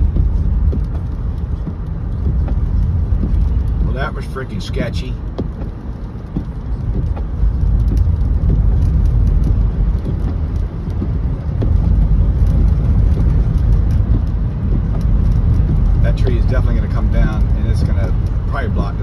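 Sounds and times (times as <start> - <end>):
car tyre noise on snowy road: 0.0 - 19.0.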